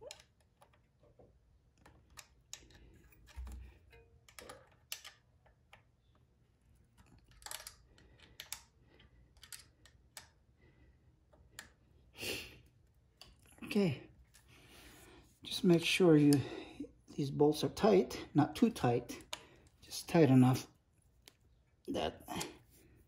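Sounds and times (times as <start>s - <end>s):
hex key metallic clicks: 6.9s - 10.4s.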